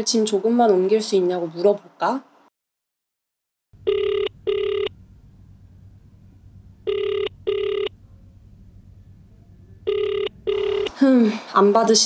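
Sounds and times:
telephone ringback tone: 0:03.8 - 0:04.9, 0:06.8 - 0:08.0, 0:09.8 - 0:10.9
faint low hum: 0:03.8 - 0:12.0.

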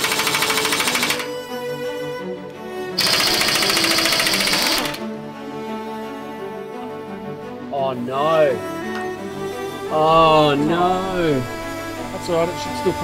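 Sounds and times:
background music: 0:00.0 - 0:13.0
impact wrench rattling: 0:03.0 - 0:05.0
high whine: 0:09.8 - 0:13.0.

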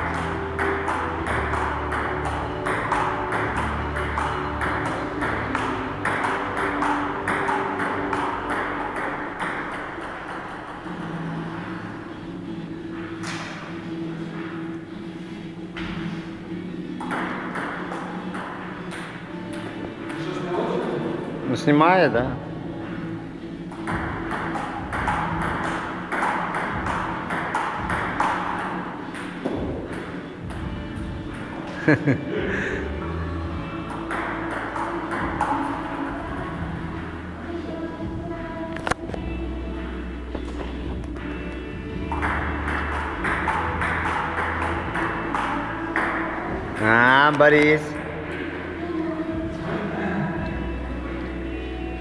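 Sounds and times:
ping pong ball hitting paddles: 0:00.0 - 0:10.9, 0:17.0 - 0:20.4, 0:23.7 - 0:31.7, 0:33.9 - 0:36.0, 0:42.0 - 0:48.5
ping pong ball bouncing on table: 0:00.1 - 0:10.8, 0:17.0 - 0:19.2, 0:23.7 - 0:30.7, 0:33.9 - 0:35.8, 0:42.0 - 0:47.7.

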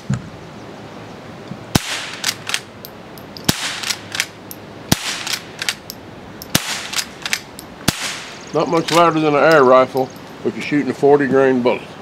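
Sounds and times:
rifle shots cracking: 0:01.7 - 0:02.7, 0:03.4 - 0:09.2
rifle lever metallic clacks: 0:05.2 - 0:07.7.

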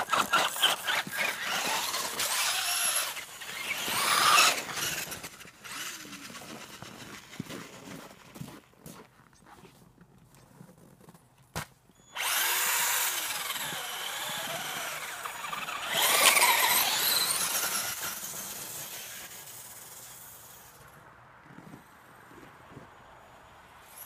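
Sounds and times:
electric toy car motor whining: 0:00.0 - 0:07.7, 0:12.1 - 0:20.9.

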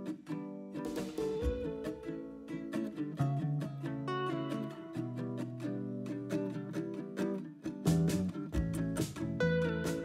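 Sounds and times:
plucked acoustic guitar: 0:00.0 - 0:10.0
low beat: 0:00.9 - 0:02.8, 0:07.8 - 0:10.0.

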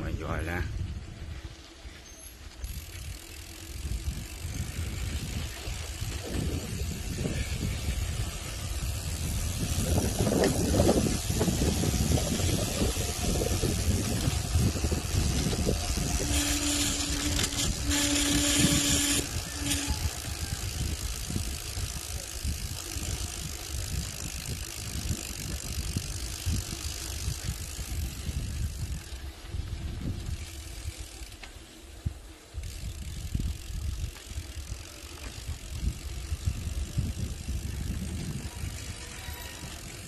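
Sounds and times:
wind buffeting microphone: 0:00.0 - 0:02.0, 0:02.7 - 0:31.0, 0:32.0 - 0:40.0
bike tyre rumble: 0:00.0 - 0:40.0
freewheel hub ratchet buzzing: 0:01.4 - 0:40.0.

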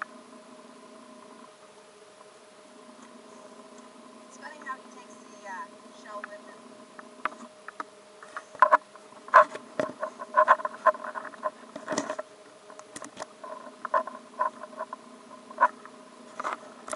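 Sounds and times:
faint steady hum: 0:00.0 - 0:16.9
shell scraping on wood: 0:08.2 - 0:12.2.

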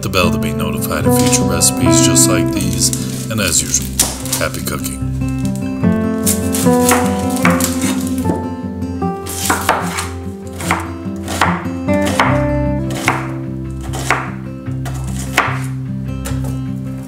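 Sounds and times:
background music: 0:00.0 - 0:17.0
knife chopping on wooden board: 0:06.2 - 0:08.4, 0:09.2 - 0:16.6.

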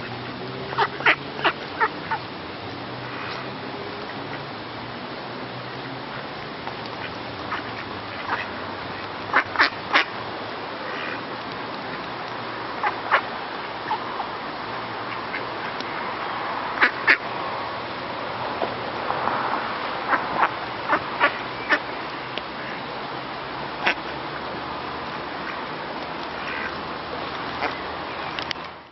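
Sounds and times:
ducks quacking: 0:00.0 - 0:02.3, 0:07.0 - 0:10.1, 0:10.8 - 0:11.2, 0:12.8 - 0:14.0, 0:15.0 - 0:16.1, 0:16.8 - 0:17.2, 0:20.1 - 0:21.9, 0:23.8 - 0:24.3, 0:26.3 - 0:26.8.

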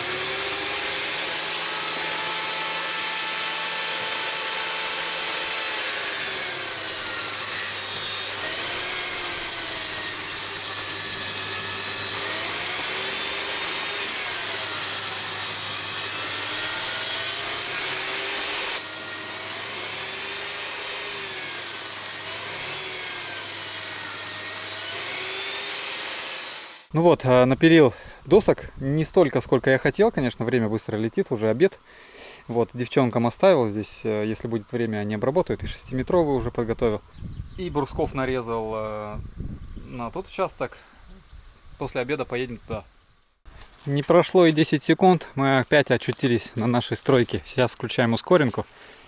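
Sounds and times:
power saw cutting wood: 0:00.0 - 0:26.9.

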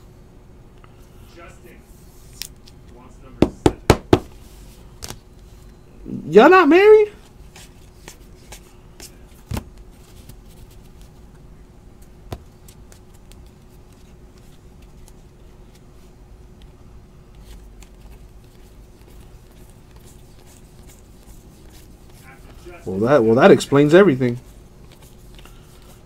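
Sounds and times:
trading cards clicking and rustling: 0:12.0 - 0:15.9, 0:17.3 - 0:26.0.

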